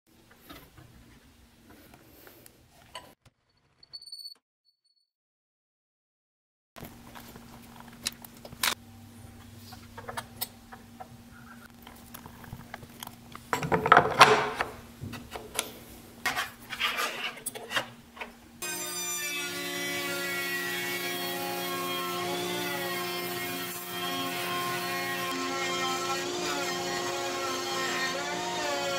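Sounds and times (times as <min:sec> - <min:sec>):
router cutting wood: 0:18.6 - 0:28.9.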